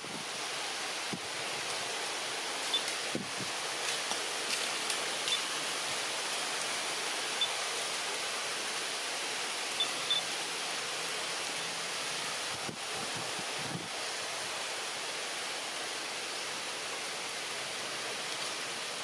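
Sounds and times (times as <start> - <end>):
outdoor background hiss: 0.0 - 19.0
faint high chirps: 9.8 - 10.4.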